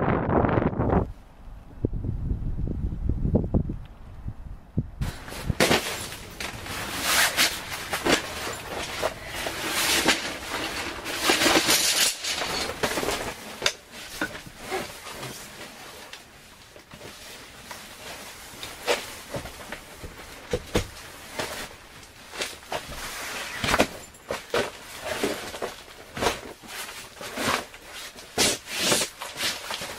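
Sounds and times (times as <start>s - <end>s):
fabric rustling: 5.0s - 29.9s.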